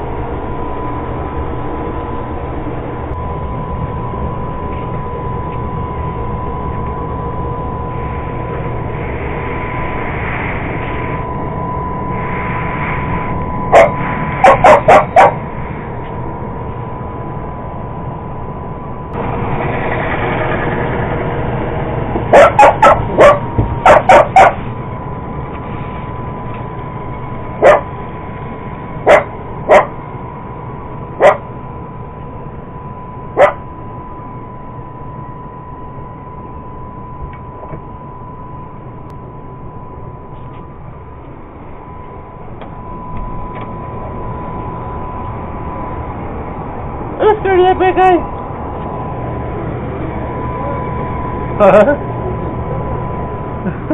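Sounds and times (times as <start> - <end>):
dog barking: 13.7 - 15.4, 22.3 - 24.6, 27.6 - 27.9, 29.0 - 30.0, 31.2 - 31.4, 33.4 - 33.6
robot vacuum running: 19.2 - 24.7.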